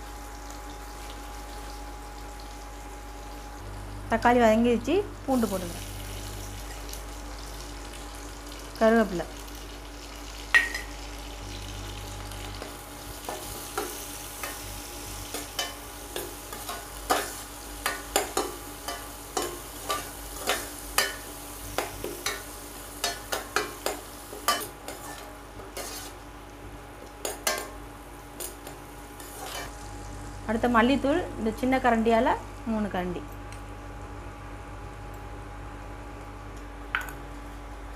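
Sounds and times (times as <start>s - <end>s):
food sizzling in oil: 0.0s - 32.1s
ladle scraping a pan: 25.8s - 26.2s.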